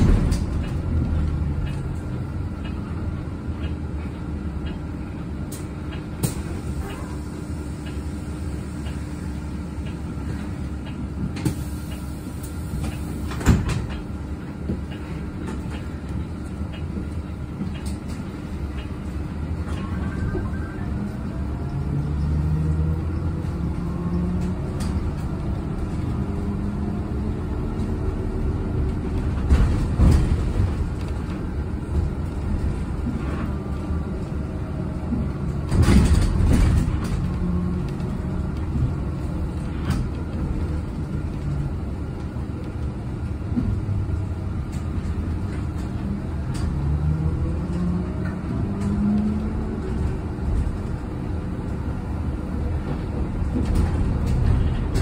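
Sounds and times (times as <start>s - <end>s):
knocks and rattles over bumps: 0.0s - 2.8s, 27.7s - 33.5s, 35.0s - 42.4s, 52.8s - 55.0s
bus road rumble: 0.0s - 55.0s.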